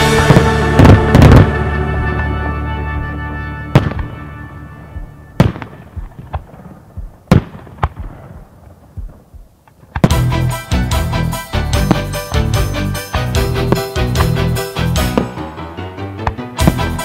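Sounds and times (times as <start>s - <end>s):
held music chord: 0.0s - 6.0s, 10.1s - 17.0s
fireworks sharp reports: 0.0s - 10.5s, 11.6s - 15.7s, 16.6s - 17.0s.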